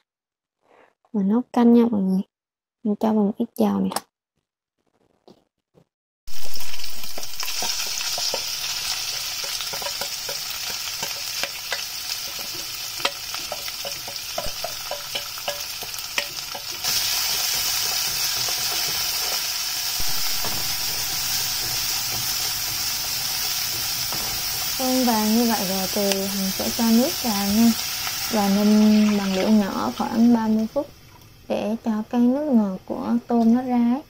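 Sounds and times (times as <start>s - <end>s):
shrimp sizzling in hot oil: 6.3s - 31.8s
chopsticks scraping a pan: 7.1s - 19.4s.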